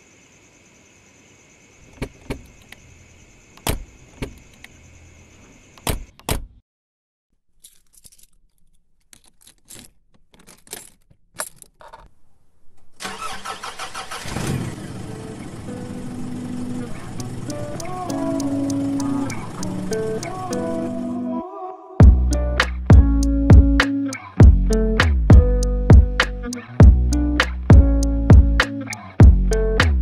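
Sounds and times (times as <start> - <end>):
car rattling past: 13.1 - 17.5
keyboard typing clicks: 17.2 - 20.8.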